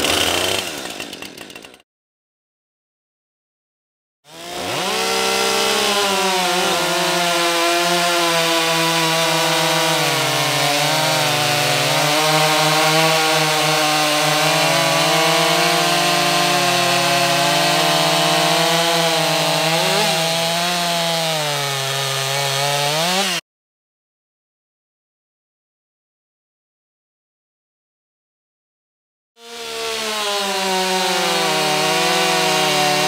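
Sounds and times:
chainsaws cutting log: 0.0 - 1.8, 4.3 - 23.4, 29.4 - 33.0.

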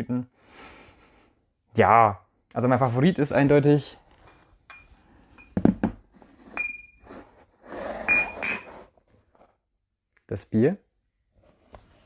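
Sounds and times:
glass bottles clinking: 4.2 - 6.0, 6.6 - 7.0, 8.1 - 8.7
glass bottles knocking on table: 4.2 - 6.0, 8.1 - 8.7.

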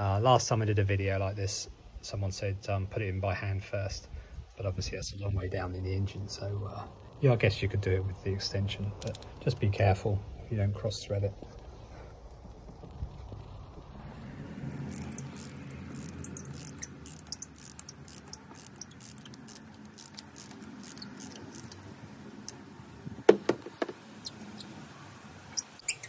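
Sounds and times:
socket ratchet clicking: 9.0 - 9.3, 14.7 - 22.6
loud sharp knocks: 23.3 - 24.0.

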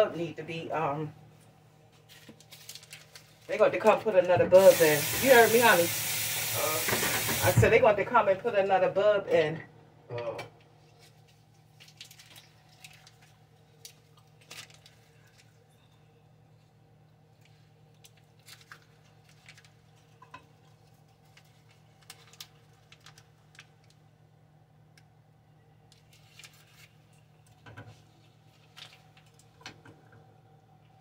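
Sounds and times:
paper wrapper crinkling: 2.0 - 3.6, 11.0 - 15.5, 18.1 - 19.8, 21.2 - 24.0, 26.0 - 27.1.

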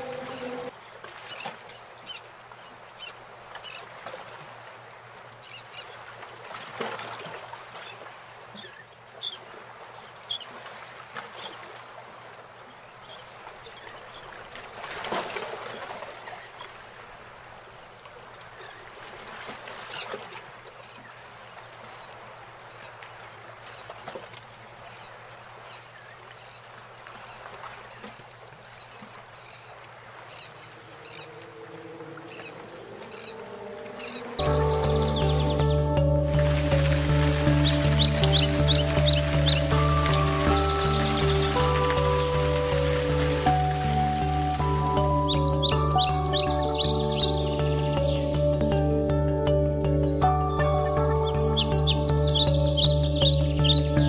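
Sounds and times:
birds calling: 0.0 - 4.4, 16.2 - 54.0.

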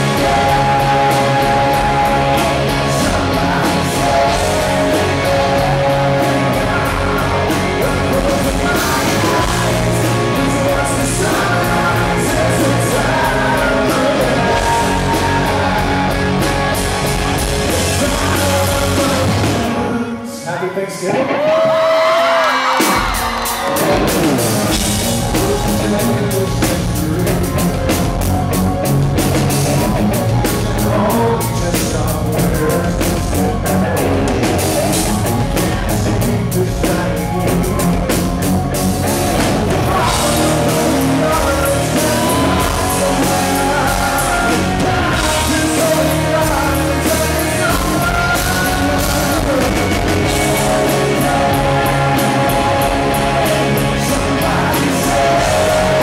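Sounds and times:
drum kit: 0.0 - 20.0, 21.4 - 56.0
male lead vocal: 0.0 - 28.6, 29.4 - 56.0
electric guitar: 0.0 - 56.0.

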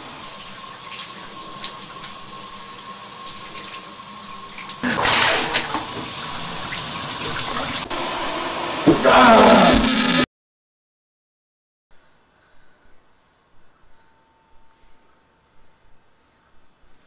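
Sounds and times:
shower water spray hissing: 0.0 - 10.1
faint steady whine: 11.9 - 17.0.

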